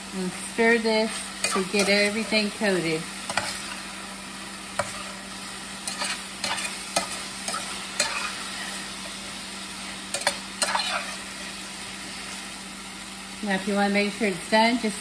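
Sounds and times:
food sizzling in a skillet: 0:00.0 - 0:15.0
spatula scraping and knocking pan: 0:03.3 - 0:03.8, 0:04.7 - 0:09.2, 0:10.1 - 0:11.2.

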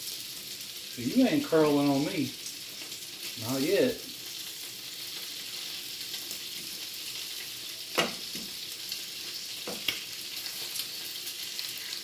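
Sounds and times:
bacon sizzling on a griddle: 0:00.0 - 0:12.0.

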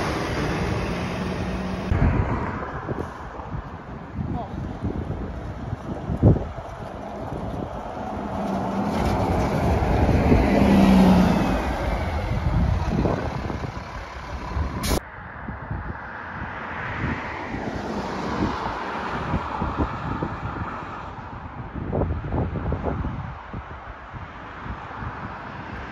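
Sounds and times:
bus driving past: 0:00.0 - 0:15.0
road noise: 0:00.0 - 0:25.9.

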